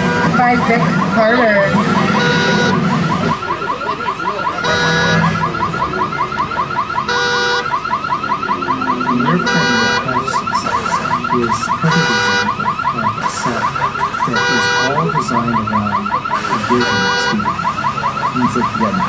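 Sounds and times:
car alarm rising chirp: 0.0s - 19.0s.

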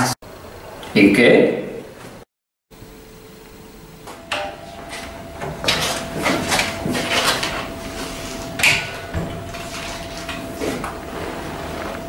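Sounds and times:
faint steady hum: 2.7s - 12.0s
drawers and doors knocking and rattling: 8.5s - 11.6s.

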